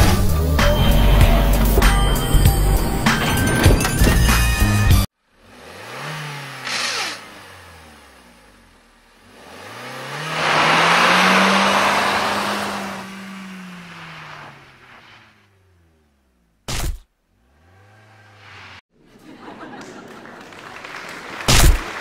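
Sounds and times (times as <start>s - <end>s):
motor running: 6.6s - 7.3s.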